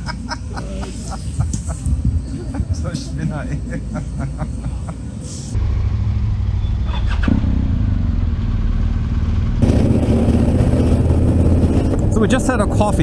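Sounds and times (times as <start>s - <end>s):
motorcycle engine running: 5.6s - 13.0s.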